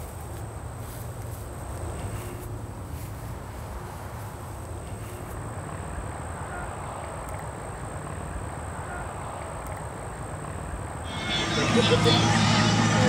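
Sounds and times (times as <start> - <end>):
faint insect chirping: 0.0 - 11.4
thin high whine: 11.0 - 13.0.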